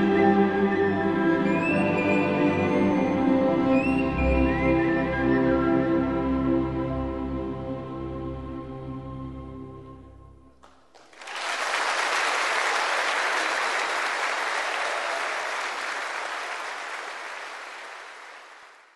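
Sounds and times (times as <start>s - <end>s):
audience applause: 10.6s - 18.9s.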